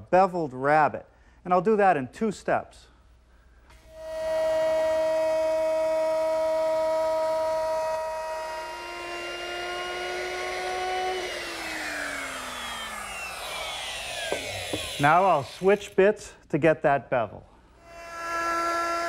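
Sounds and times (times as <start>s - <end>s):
electric router whining: 3.8s - 16.0s, 17.8s - 19.0s.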